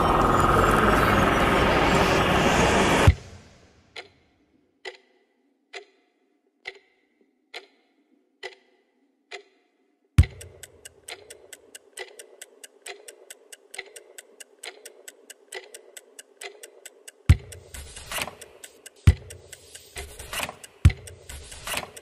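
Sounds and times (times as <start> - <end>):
wall clock ticking: 3.9 - 4.2, 4.8 - 9.6, 10.2 - 22.0
steady hiss: 17.6 - 21.9.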